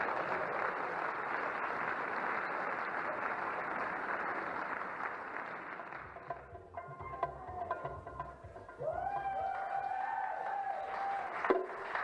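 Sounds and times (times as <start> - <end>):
audience applauding: 0.0 - 6.6, 8.8 - 12.0
steel pan notes: 6.1 - 9.8.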